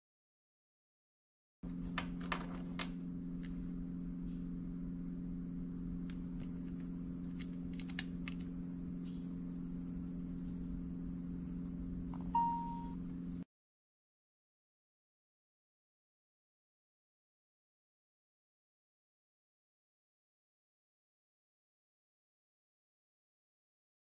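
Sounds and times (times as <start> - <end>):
low hum: 1.7 - 13.4
high hiss: 6.0 - 13.4
short beep: 12.2 - 13.0.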